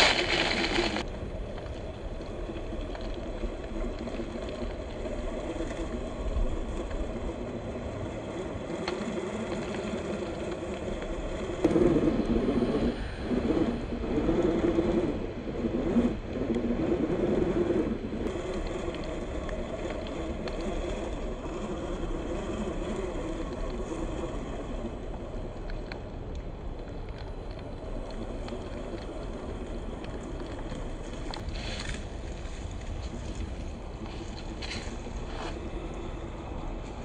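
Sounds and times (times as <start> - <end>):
electric motor whine: 3.2 - 26.0.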